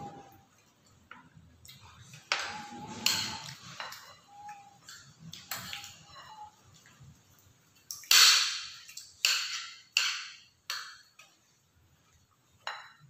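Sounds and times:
cutlery clinking on ceramic plates: 1.7 - 6.6, 8.0 - 11.4, 12.6 - 13.0.

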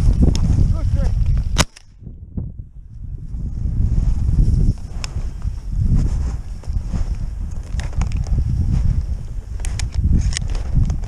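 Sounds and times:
wind buffeting microphone: 0.0 - 11.0
footsteps crunching through snow: 3.2 - 10.9.

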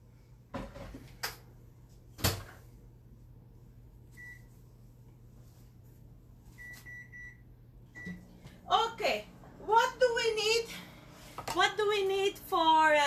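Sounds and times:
microwave keypad beeps: 4.2 - 4.5, 6.6 - 7.4, 8.0 - 8.2.

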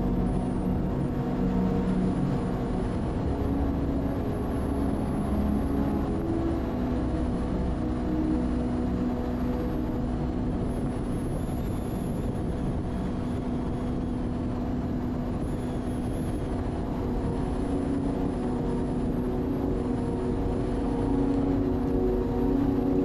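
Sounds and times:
jet ski engine running: 0.0 - 23.0.

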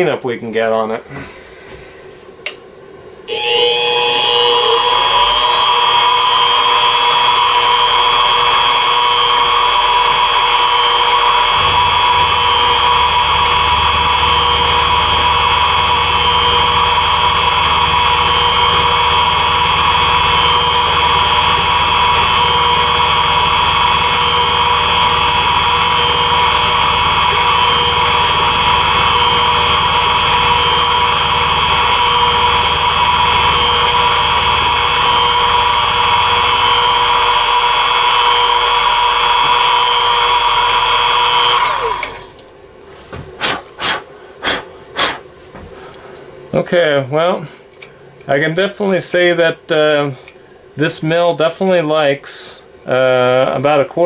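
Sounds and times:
low hum: 3.1 - 42.5
milling motor whining: 3.3 - 42.4.

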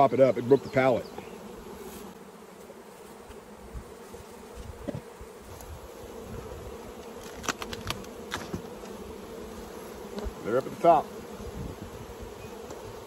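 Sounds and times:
honeybees buzzing: 0.0 - 13.0
wooden hive boxes clicking: 6.7 - 9.0, 10.0 - 10.8, 12.5 - 13.0.

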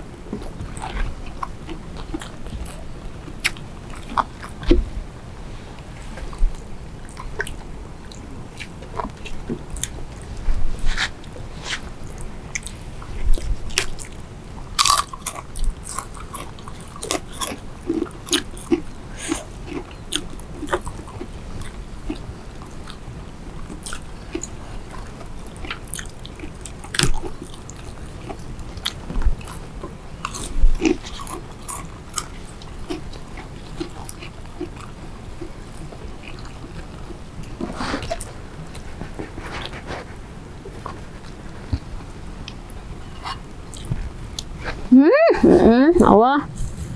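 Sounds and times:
people chewing crisp food: 0.0 - 45.6.

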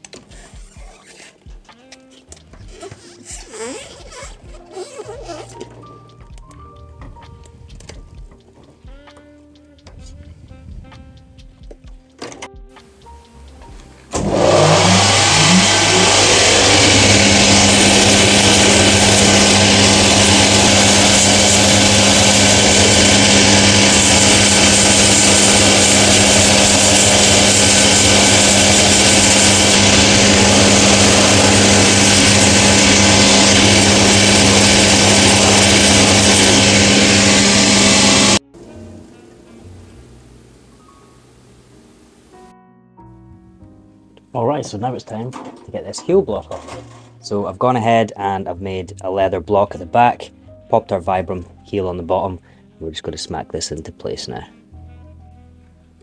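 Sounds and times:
rubber sole grinding on sanding belt: 0.0 - 5.9, 14.2 - 38.4
machine motor humming: 13.7 - 42.3.

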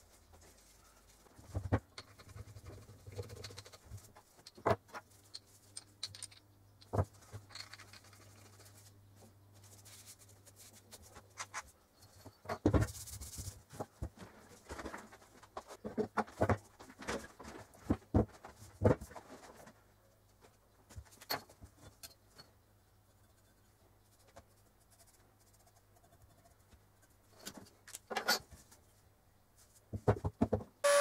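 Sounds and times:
tools rubbing and scraping: 0.0 - 13.9, 21.0 - 28.8
metal tools knocking and clicking: 5.3 - 8.0.

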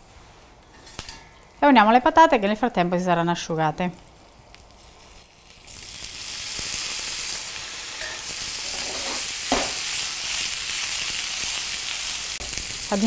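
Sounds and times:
potatoes sizzling in hot oil: 4.0 - 13.0.

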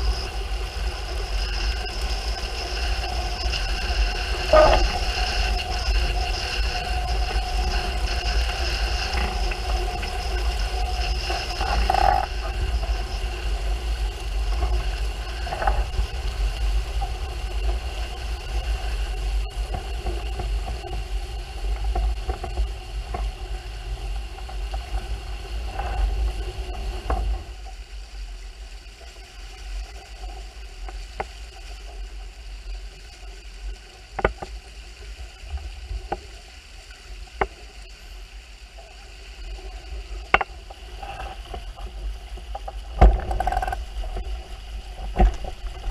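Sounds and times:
steady tones: 0.6 - 8.0.

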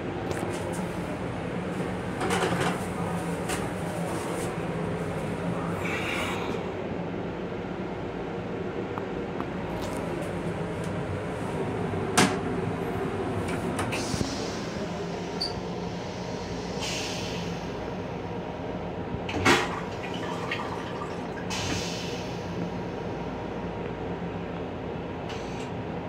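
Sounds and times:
electric railcar running noise: 6.7 - 26.0.

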